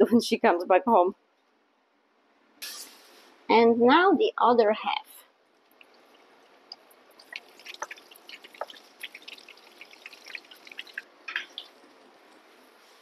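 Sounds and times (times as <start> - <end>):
oil crackling and popping: 5.6 - 12.5
dough frying in hot oil: 5.6 - 13.0.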